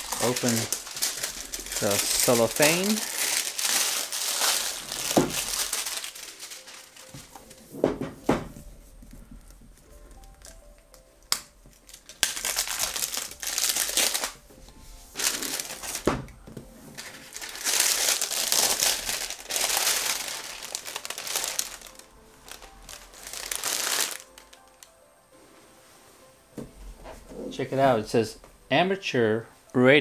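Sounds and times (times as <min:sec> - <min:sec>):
shrink wrap crinkling: 0:00.0 - 0:07.6, 0:09.4 - 0:14.4, 0:15.1 - 0:16.1, 0:17.0 - 0:25.0.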